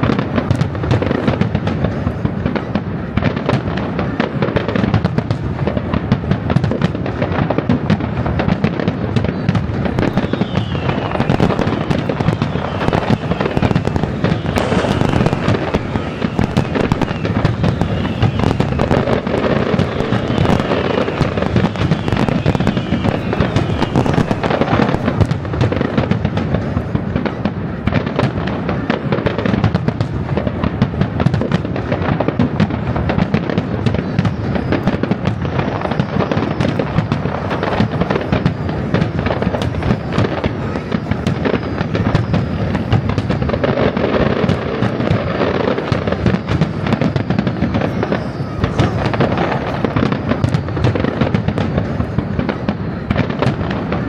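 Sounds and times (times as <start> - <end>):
fireworks bangs and crackles: 0.0 - 54.0
fireworks falling whistles: 0.0 - 54.0.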